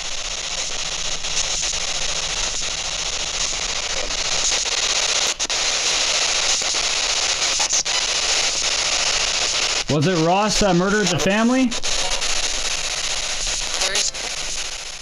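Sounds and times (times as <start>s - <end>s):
radio static hiss: 0.0s - 15.0s.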